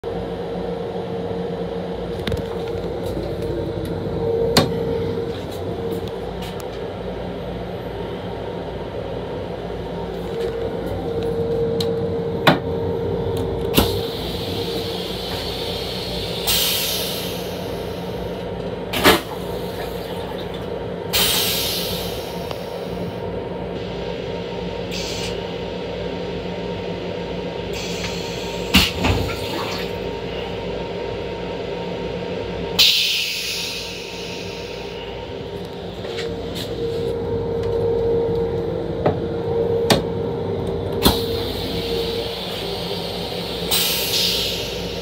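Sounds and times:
railcar hum: 0.0s - 45.0s
toilet flush hissing: 13.8s - 18.2s, 27.8s - 30.0s, 41.0s - 45.0s.

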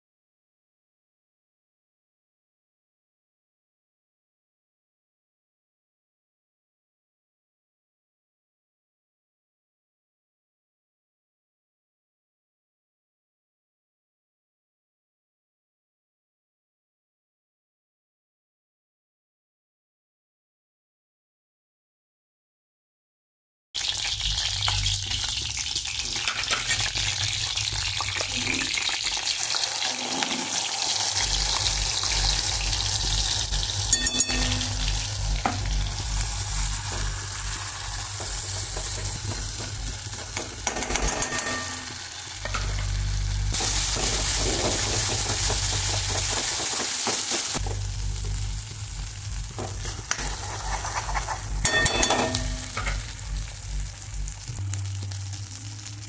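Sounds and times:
paste sizzling in hot oil: 23.8s - 40.7s, 41.6s - 54.4s
metal ladle scraping a pan: 26.2s - 42.8s, 49.6s - 53.1s.

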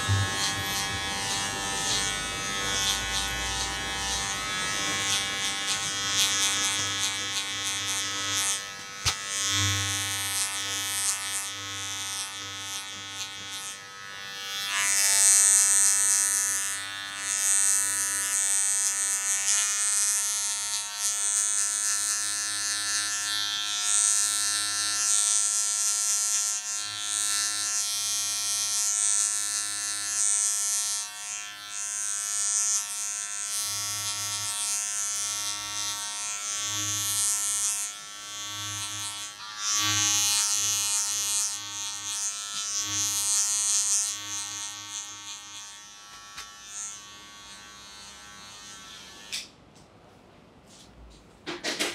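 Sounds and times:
clipper blade hissing through hair: 0.0s - 7.5s
electric hair clippers buzzing: 0.0s - 49.6s.

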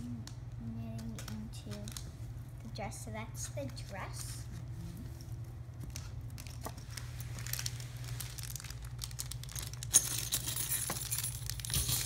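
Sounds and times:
low steady hum: 0.0s - 12.0s
plastic packaging crinkling: 5.4s - 11.8s.

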